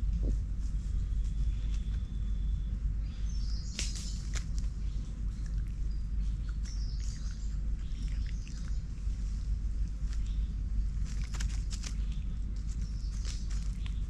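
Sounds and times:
low rumble: 0.0s - 14.0s
high bird chirps: 1.9s - 8.9s
dry leaves crackling: 3.6s - 14.0s.

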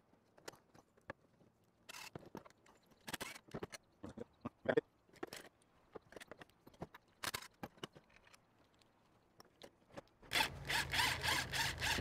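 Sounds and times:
cordless drill running: 10.3s - 12.0s.

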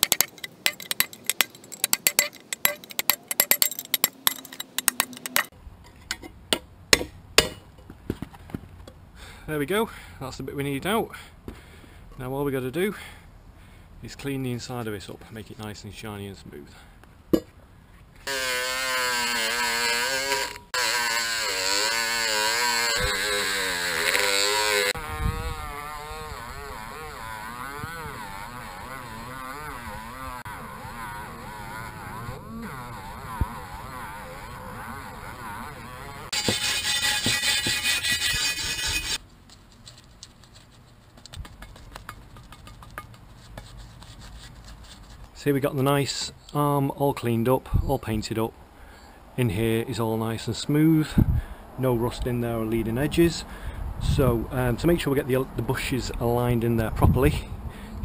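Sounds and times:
metal-on-metal tapping: 0.0s - 7.9s, 17.3s - 17.5s, 41.5s - 43.2s
electric drill grinding metal: 18.2s - 39.2s.

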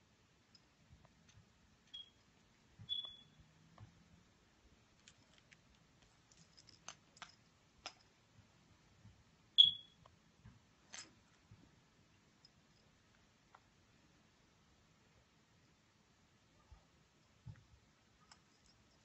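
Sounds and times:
smartphone high pings: 9.6s - 9.9s.

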